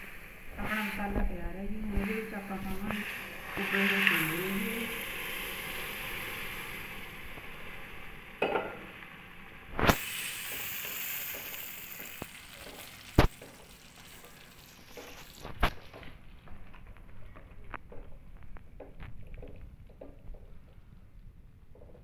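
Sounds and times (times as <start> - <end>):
chickpeas sizzling in a pan: 0.0 - 17.4.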